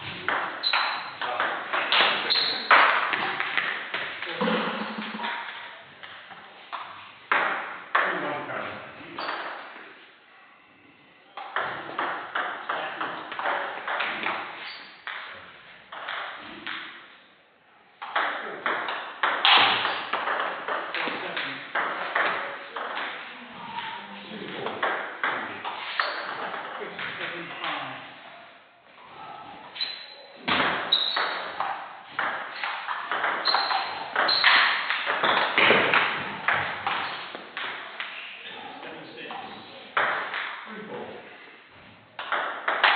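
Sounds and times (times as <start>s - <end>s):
table tennis ball hits: 0.0s - 4.2s, 6.8s - 8.1s, 11.4s - 15.3s, 18.0s - 23.9s, 29.8s - 38.2s, 40.0s - 40.6s, 42.2s - 42.9s.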